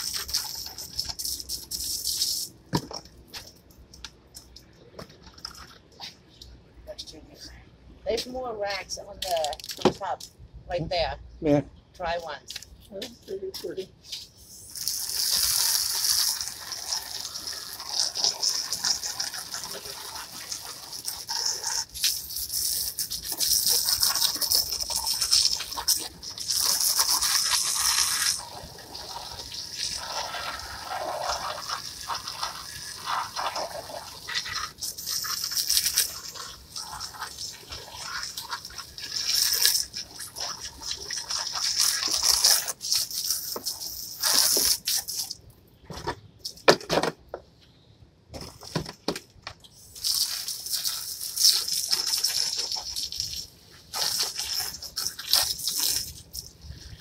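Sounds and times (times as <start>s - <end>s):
hose nozzle spraying water: 0.0s - 4.6s, 13.6s - 45.4s, 49.7s - 57.0s.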